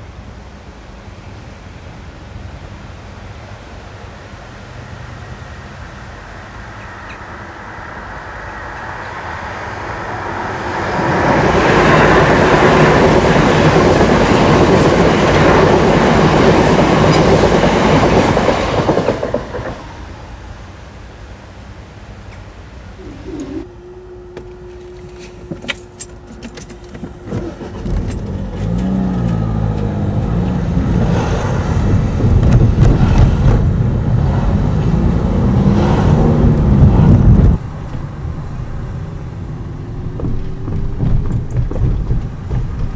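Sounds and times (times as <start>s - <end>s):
cars driving past: 3.3s - 21.7s, 27.1s - 42.9s
steady hum: 19.8s - 26.3s.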